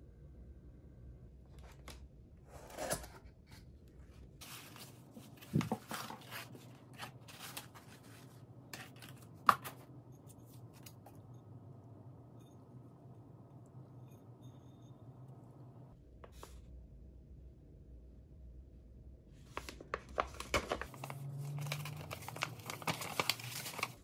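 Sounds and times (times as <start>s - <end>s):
cardboard rustling and scraping: 2.5s - 3.6s, 4.4s - 11.0s.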